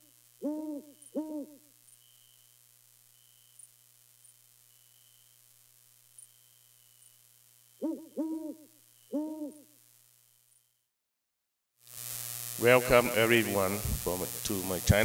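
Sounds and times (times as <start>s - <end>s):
owl hooting: 0.0s - 2.3s, 7.8s - 9.8s
faint steady hum: 0.0s - 10.9s, 11.9s - 15.0s.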